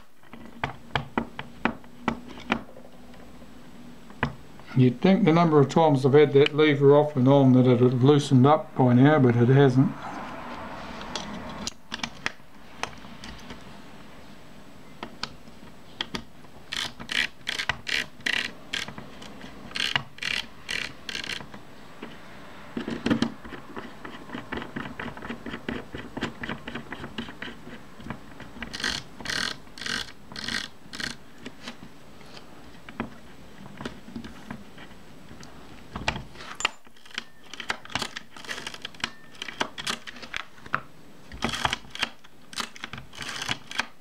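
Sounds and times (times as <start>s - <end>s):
rasping scrapes of screwdriver: 16.7s - 21.5s, 43.1s - 43.9s.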